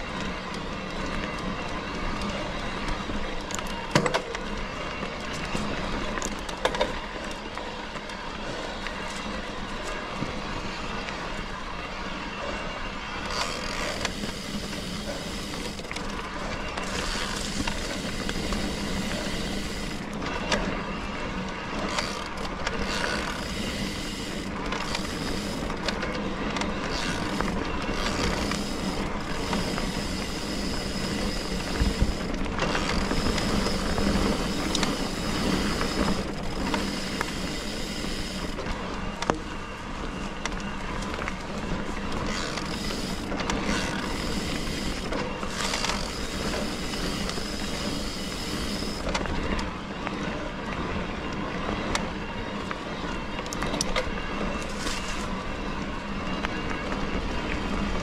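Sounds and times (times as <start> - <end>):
bike tyres rolling on dirt: 0.0 - 58.0
high steady motor whine: 0.0 - 58.0
bike rattling over bumps: 13.2 - 52.7.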